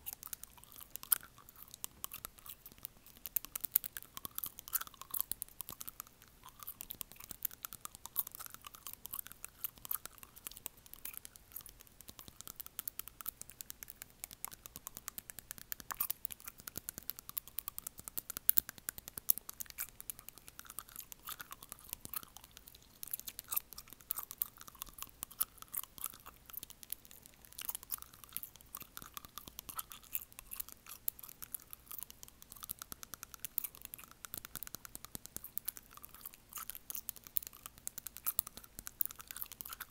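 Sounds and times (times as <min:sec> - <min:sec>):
fingernail clicking on teeth: 0:00.0 - 0:39.9.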